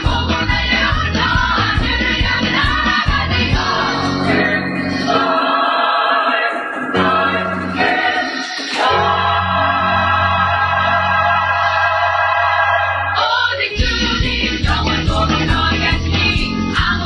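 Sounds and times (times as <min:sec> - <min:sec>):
drums beaten with sticks: 0:00.0 - 0:04.4, 0:13.8 - 0:17.0
choir singing: 0:00.0 - 0:17.0.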